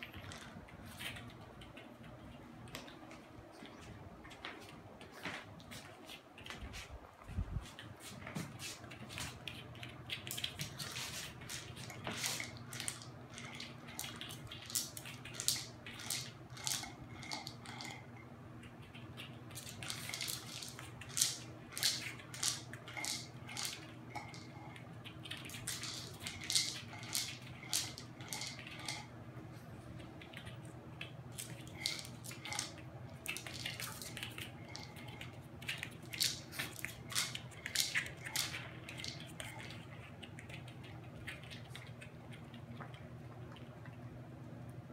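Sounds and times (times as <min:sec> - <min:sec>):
dog crunching kibble: 0:08.9 - 0:18.1, 0:19.0 - 0:29.1, 0:30.0 - 0:43.9
kibble rattling in plastic toy: 0:10.3 - 0:18.1, 0:19.5 - 0:29.1, 0:31.3 - 0:39.9.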